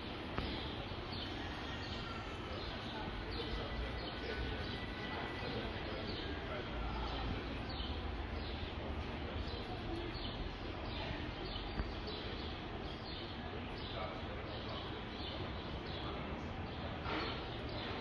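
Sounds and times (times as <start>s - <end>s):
crowd chatter: 0.0s - 18.0s
small birds chirping: 0.0s - 18.0s.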